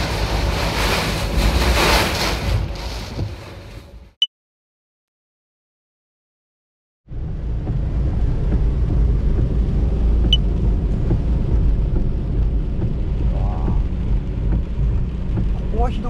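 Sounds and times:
rain hissing on van: 0.0s - 4.1s, 7.1s - 16.0s
wind and road noise rumble: 0.0s - 4.2s, 7.1s - 16.0s.

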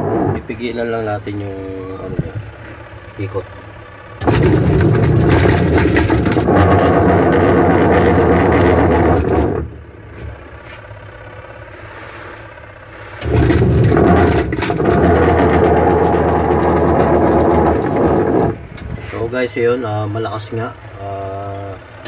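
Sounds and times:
washing machine motor hum: 0.0s - 19.0s.

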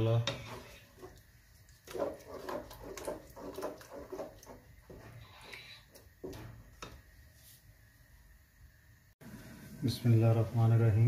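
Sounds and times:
spatula scraping a pot: 0.0s - 7.0s
meat frying: 0.0s - 7.4s.

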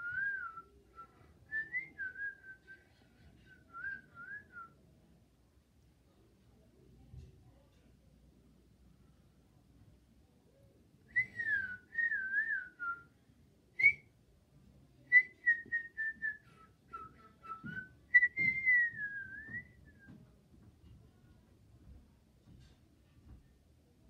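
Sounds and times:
person whistling a tune: 0.0s - 2.8s, 11.1s - 13.0s, 13.8s - 14.0s, 15.1s - 20.0s.

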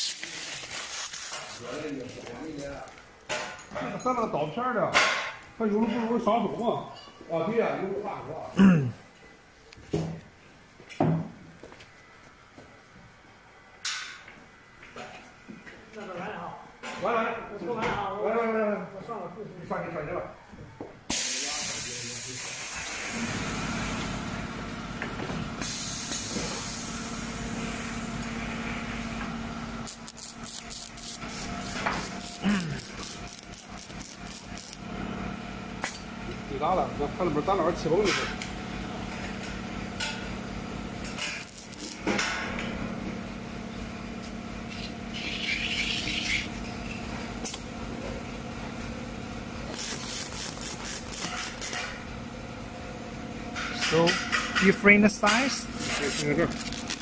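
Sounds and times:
short hiss: 21.1s - 23.2s
machine humming and hissing: 21.1s - 37.7s, 38.3s - 53.7s.

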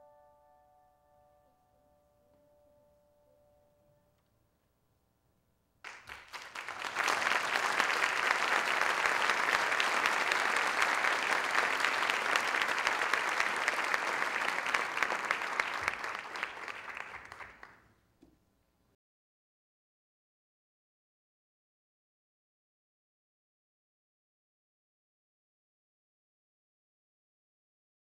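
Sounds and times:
audience applauding: 5.8s - 17.8s.

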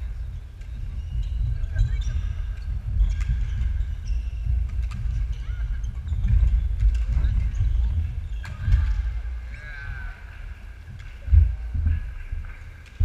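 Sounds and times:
court shoes squeaking: 0.0s - 9.6s
low hall rumble: 0.0s - 13.0s.

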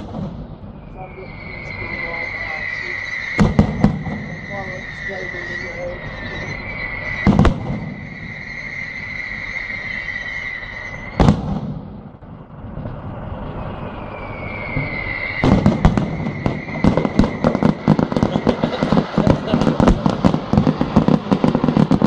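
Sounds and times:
crackling firework bangs: 0.0s - 22.0s
firework shell bursting bang: 7.2s - 8.0s, 11.2s - 12.2s.

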